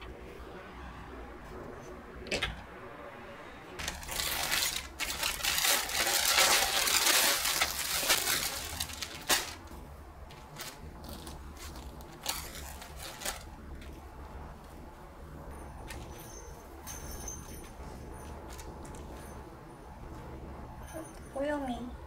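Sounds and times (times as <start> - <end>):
plastic bag crinkling: 3.8 - 9.7, 10.3 - 13.5.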